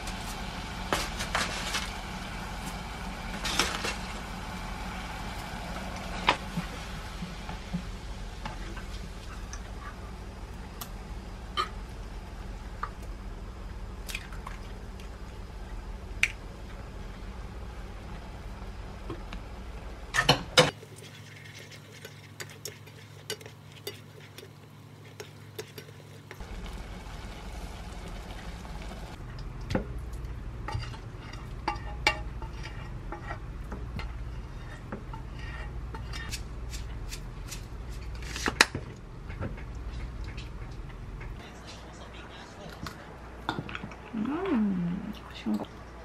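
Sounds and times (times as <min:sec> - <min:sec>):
spoon stirring thick porridge: 0:20.8 - 0:26.4.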